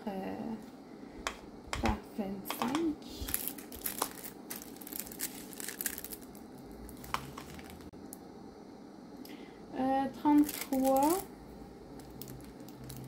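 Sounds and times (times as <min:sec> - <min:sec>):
plastic film crinkling: 0:02.6 - 0:07.9, 0:10.4 - 0:11.3, 0:12.0 - 0:13.0.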